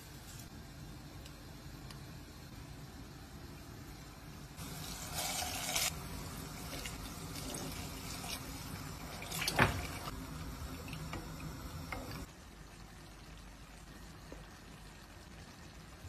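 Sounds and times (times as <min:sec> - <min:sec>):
water pouring into a pot: 0:04.6 - 0:12.3.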